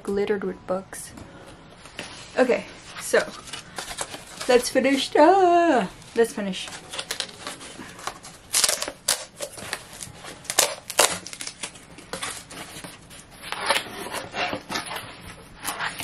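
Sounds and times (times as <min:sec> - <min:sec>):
cardboard being torn: 0:06.7 - 0:15.0.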